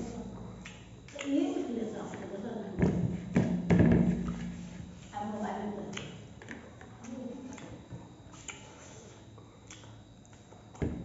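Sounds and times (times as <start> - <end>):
person chewing food: 0.3 - 1.3, 6.0 - 10.8.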